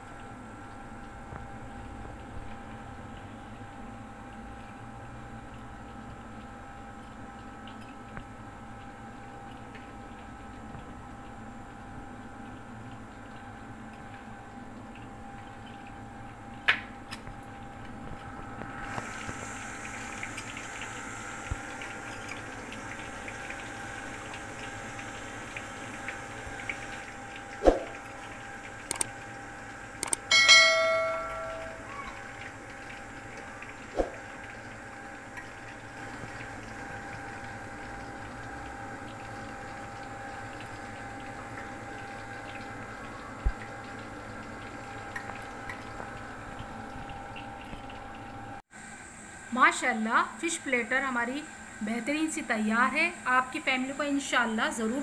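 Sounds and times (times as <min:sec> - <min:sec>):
background hum: 0:00.0 - 0:55.0
button clicks and bell ding: 0:30.3 - 0:31.9.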